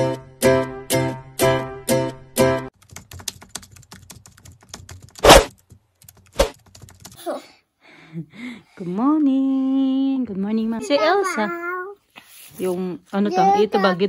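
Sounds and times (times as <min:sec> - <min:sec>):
plucked guitar chords: 0:00.0 - 0:02.7
computer keyboard typing: 0:02.7 - 0:07.2.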